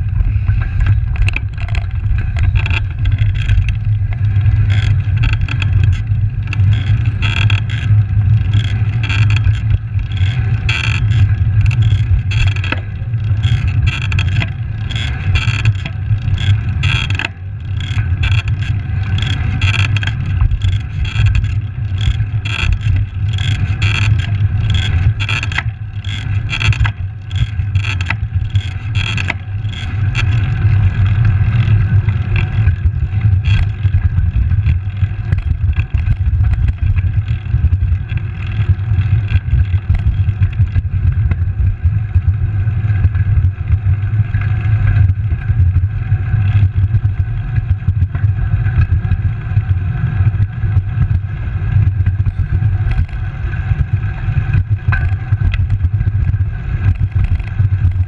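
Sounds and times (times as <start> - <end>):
bicycle tyre noise on asphalt: 0.0 - 58.0
sharp clicks or rattles: 0.5 - 41.6, 54.5 - 58.0.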